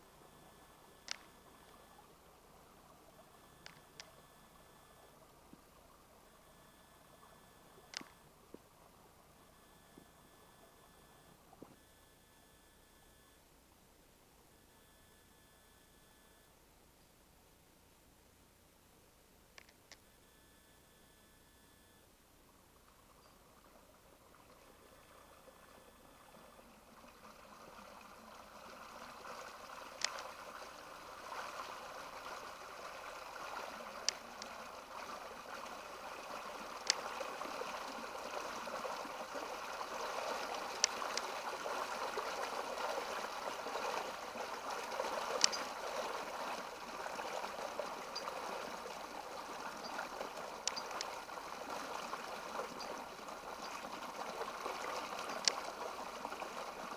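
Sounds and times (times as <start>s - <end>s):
sharp clicks: 7.8s - 8.2s, 19.6s - 20.1s, 30.0s - 30.3s, 45.3s - 45.7s, 50.6s - 51.2s
water gurgling over rocks: 22.8s - 56.9s.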